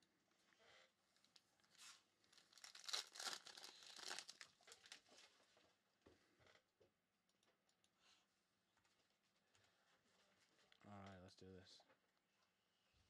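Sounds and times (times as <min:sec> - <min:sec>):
foil wrapper tearing and crinkling: 0:01.6 - 0:05.1.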